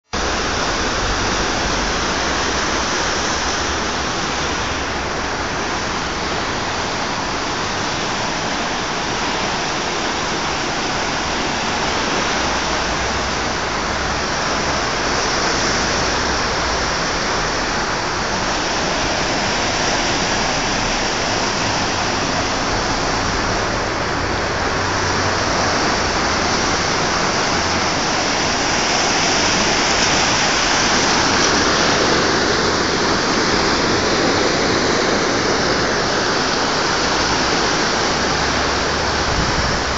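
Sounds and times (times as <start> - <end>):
flooded river rushing: 0.2 - 39.9.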